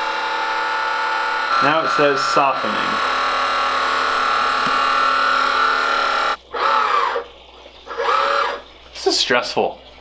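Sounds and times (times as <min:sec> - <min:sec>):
valve motor whining: 0:00.0 - 0:07.2, 0:07.9 - 0:08.6.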